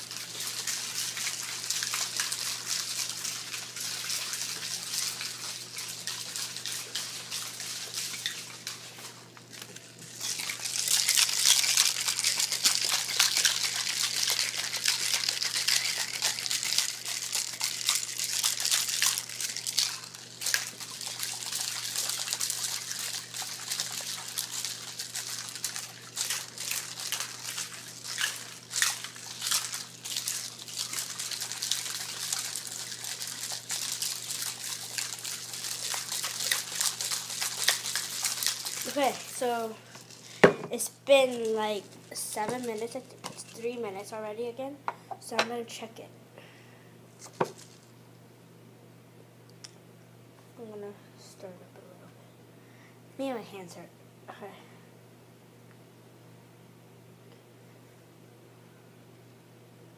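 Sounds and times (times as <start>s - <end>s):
ice and water sloshing and rattling: 0.0s - 44.2s.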